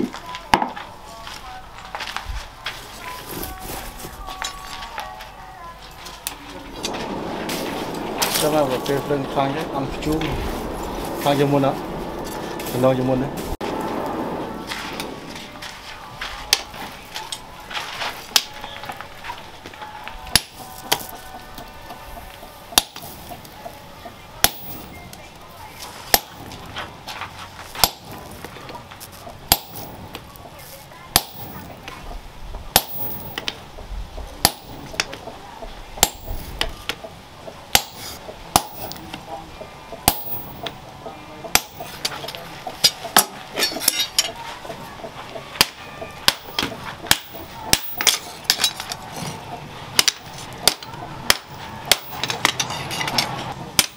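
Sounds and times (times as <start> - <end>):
hammer blows on hot metal: 18.2 - 25.2, 29.4 - 30.3, 31.1 - 31.9, 34.4 - 35.1, 36.0 - 37.0, 41.5 - 44.4.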